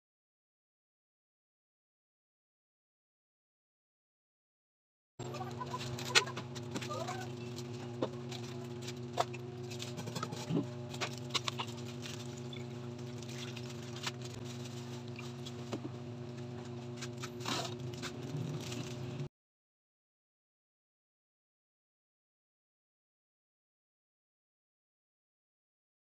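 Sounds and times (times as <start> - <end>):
steady low hum: 5.2 - 19.3.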